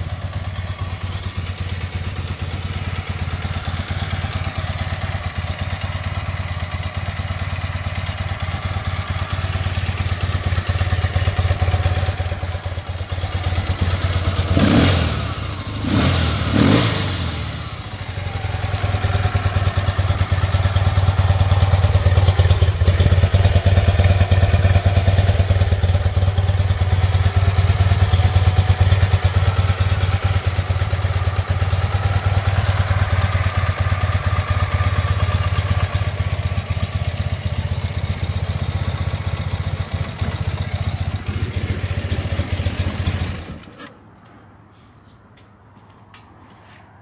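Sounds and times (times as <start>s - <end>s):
motorcycle engine running: 0.0s - 43.9s.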